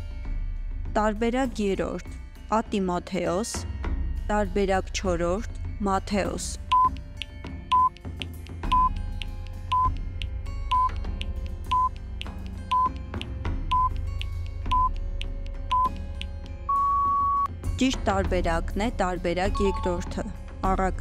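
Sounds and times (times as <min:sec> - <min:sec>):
soft background music: 0:00.0 - 0:21.0
timer beeping: 0:06.7 - 0:07.0, 0:07.7 - 0:08.0, 0:08.7 - 0:09.0, 0:09.7 - 0:10.0, 0:10.7 - 0:11.0, 0:11.7 - 0:12.0, 0:12.7 - 0:13.0, 0:13.7 - 0:15.0, 0:15.7 - 0:16.0, 0:16.7 - 0:17.5, 0:19.5 - 0:20.1
long beep: 0:08.7 - 0:08.9, 0:15.7 - 0:15.9, 0:16.7 - 0:17.5.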